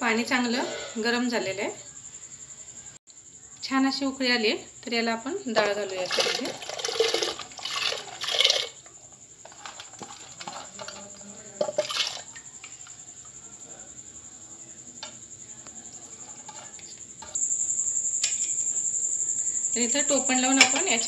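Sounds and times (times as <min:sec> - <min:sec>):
lentils splashing into water: 0:05.9 - 0:08.9, 0:09.5 - 0:12.8.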